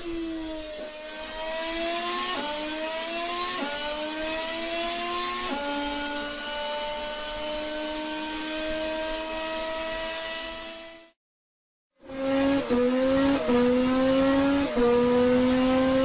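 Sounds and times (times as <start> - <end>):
racing car engine accelerating: 0.0 - 11.2, 12.0 - 16.0.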